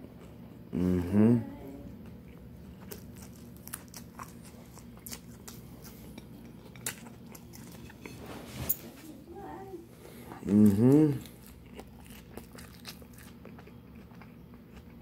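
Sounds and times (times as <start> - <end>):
person chewing crunchy food: 1.9 - 8.2, 10.0 - 15.0.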